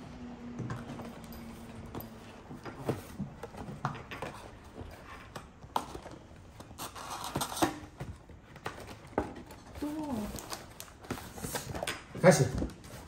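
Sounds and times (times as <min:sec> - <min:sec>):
cardboard tearing and rustling: 0:04.3 - 0:13.0.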